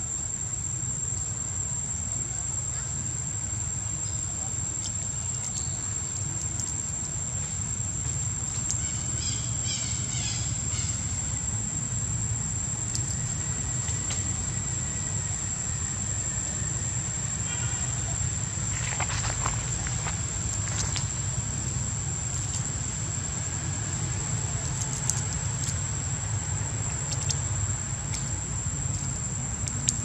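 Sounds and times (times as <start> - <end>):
high-pitched insect drone: 2.0 - 30.0
short calls: 8.7 - 11.4.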